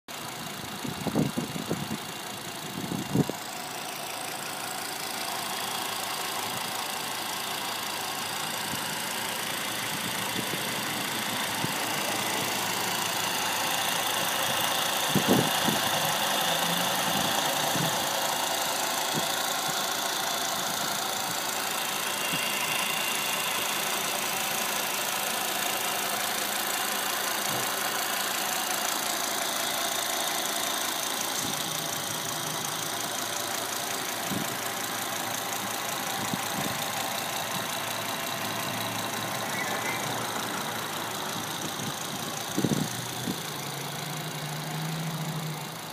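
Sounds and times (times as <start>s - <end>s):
car engine idling: 0.1s - 45.9s.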